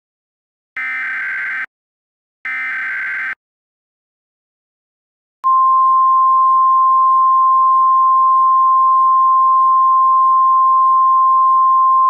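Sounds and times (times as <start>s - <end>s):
loud steady alarm tone: 0.8s - 1.7s, 2.5s - 3.4s.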